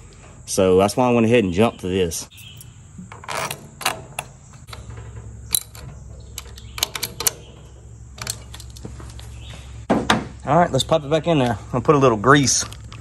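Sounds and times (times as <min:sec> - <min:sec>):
low steady hum: 0:00.0 - 0:13.0
metal parts clicking and knocking: 0:02.3 - 0:09.3.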